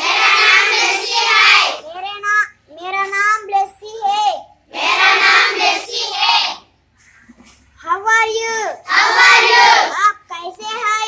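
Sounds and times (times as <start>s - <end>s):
children singing in unison: 0.0s - 1.8s, 4.7s - 6.6s, 8.9s - 9.9s.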